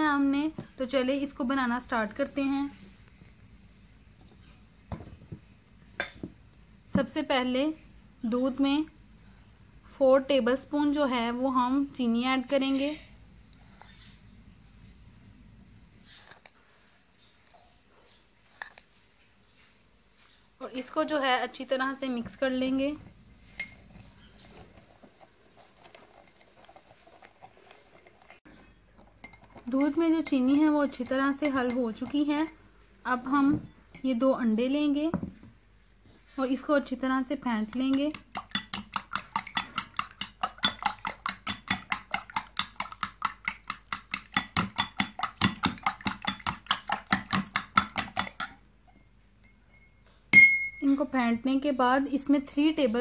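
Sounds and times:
spoon scraping a bowl: 16.0s - 16.6s, 17.5s - 19.0s, 23.4s - 32.6s, 37.7s - 49.1s.

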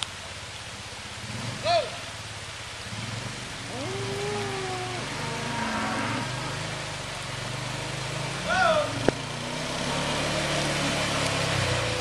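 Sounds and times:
low engine hum: 0.0s - 12.0s
rain falling on a stream: 0.0s - 12.0s
cow mooing: 3.6s - 6.8s.

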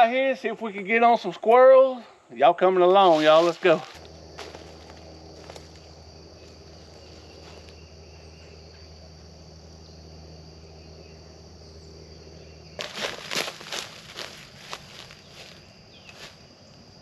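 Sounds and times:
insect chorus drone: 0.0s - 17.0s
footsteps in dry leaves: 3.0s - 7.9s, 12.8s - 16.5s.

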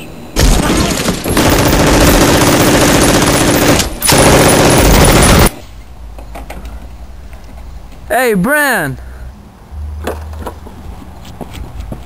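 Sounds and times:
rapid automatic gunfire: 0.4s - 5.5s.

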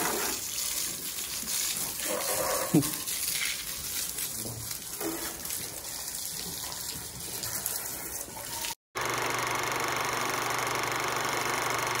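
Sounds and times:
garden hose spraying water: 0.0s - 8.8s.

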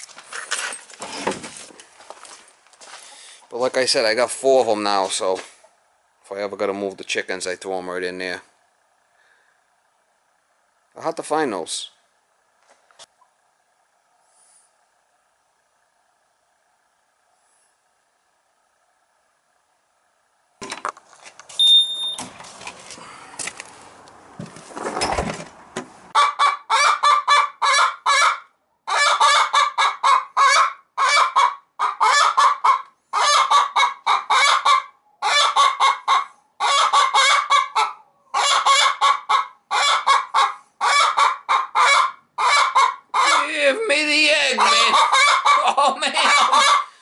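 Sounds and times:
hen cackling: 26.1s - 47.0s.

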